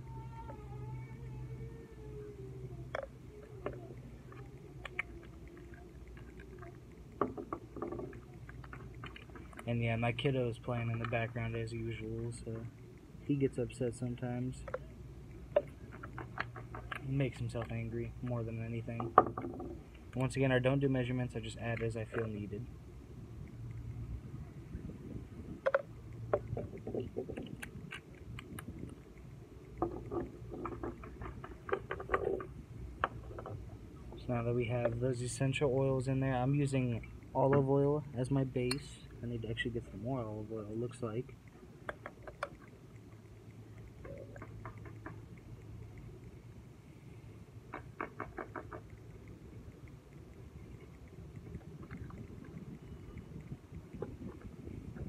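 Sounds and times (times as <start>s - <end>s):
child whining faintly: 0.0s - 5.9s
steady low hum: 0.0s - 55.0s
steady low rumble: 19.8s - 31.8s, 48.9s - 55.0s.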